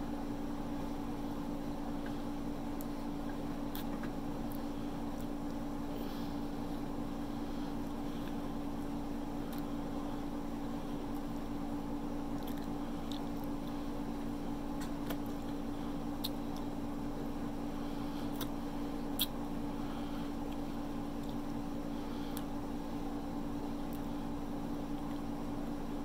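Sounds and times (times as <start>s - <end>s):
steady low hum: 0.0s - 26.0s
chewing and mouth smacks: 2.8s - 5.6s, 7.8s - 9.7s, 12.3s - 13.8s, 14.8s - 15.6s, 16.2s - 16.7s, 18.3s - 19.4s, 21.2s - 21.5s.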